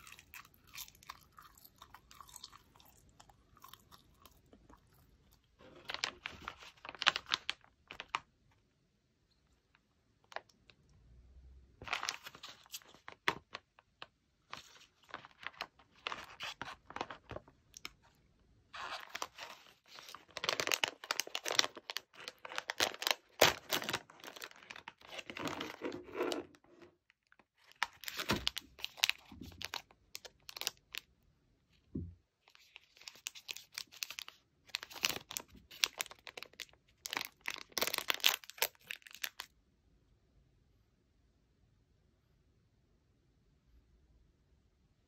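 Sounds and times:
plastic packaging rustling: 5.6 - 8.2, 11.8 - 13.6, 14.5 - 18.0, 18.8 - 26.6, 27.6 - 31.0, 32.6 - 39.5
plastic wrapper tearing: 5.6 - 8.2, 18.8 - 26.4, 27.6 - 31.0, 32.6 - 39.5.

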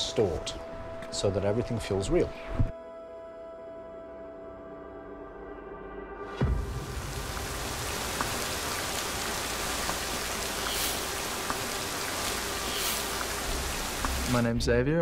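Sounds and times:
heavy rain on a wet street: 6.4 - 14.4
drips ticking: 6.8 - 14.5.

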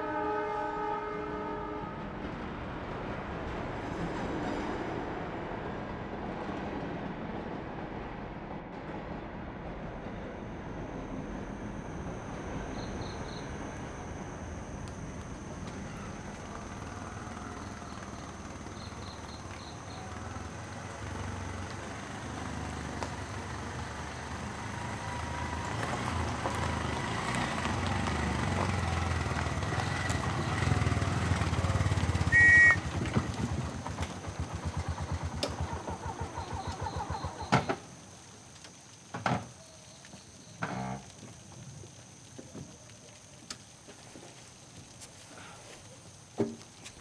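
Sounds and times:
small engine running: 11.7 - 37.6
engine cutting off with click: 25.2 - 37.9
short horn beep: 32.3 - 32.9.

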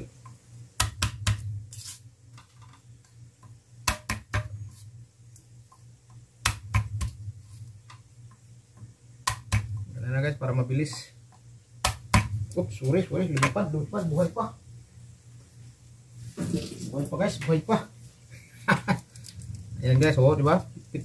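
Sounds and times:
steady low hum: 0.0 - 21.0
knife tapping on wooden board: 3.4 - 4.6.

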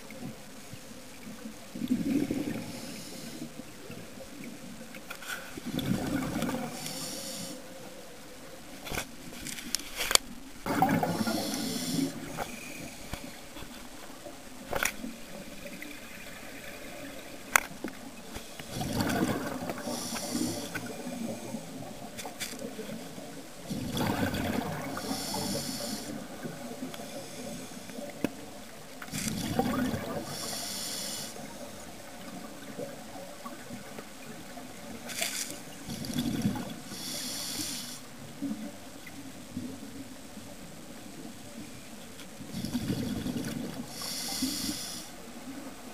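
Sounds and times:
gurgling exhaled bubbles: 1.7 - 3.2, 5.6 - 6.9, 10.6 - 14.4, 18.6 - 21.9, 23.6 - 27.6, 29.2 - 30.6, 35.8 - 36.9, 42.5 - 44.7
regulator breathing underwater: 2.0 - 3.6, 6.3 - 7.7, 10.8 - 13.7, 18.2 - 21.8, 24.8 - 28.1, 29.2 - 31.8, 35.9 - 38.1, 42.5 - 45.2.

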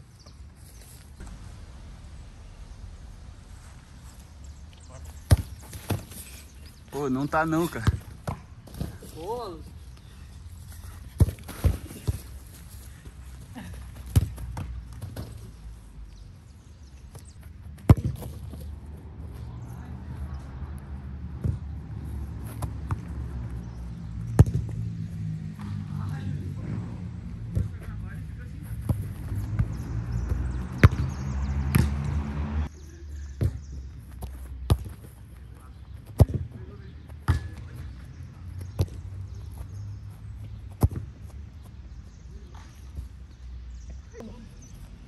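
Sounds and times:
steady low rumble: 1.0 - 5.9
football being kicked: 5.2 - 6.2, 7.7 - 9.1, 11.1 - 12.4, 14.0 - 15.5, 17.8 - 18.7, 21.4 - 21.7, 22.4 - 23.2, 24.3 - 24.8, 28.8 - 32.0, 33.4 - 35.1, 36.0 - 36.6, 37.2 - 37.8, 40.6 - 41.3.

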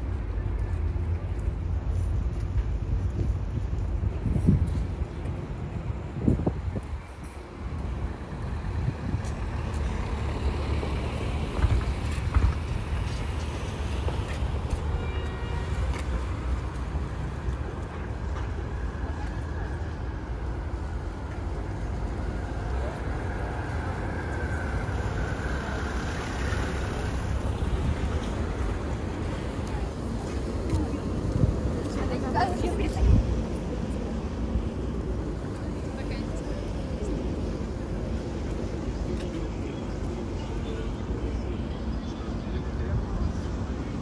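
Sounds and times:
traffic noise from passing cars: 0.0 - 44.0
faint voices: 17.6 - 44.0.

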